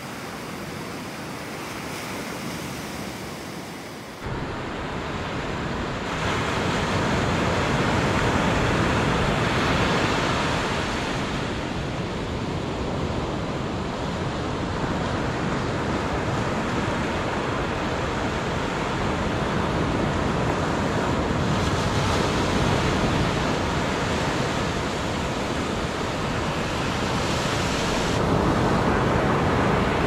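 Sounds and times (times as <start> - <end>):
waves breaking on a beach: 0.0 - 30.0.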